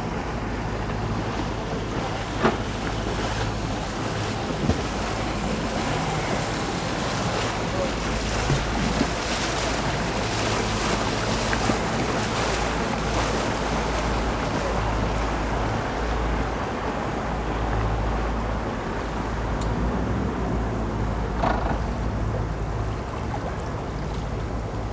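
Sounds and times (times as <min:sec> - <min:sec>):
outboard motors idling: 0:00.0 - 0:24.9
wind on microphone: 0:01.0 - 0:16.3.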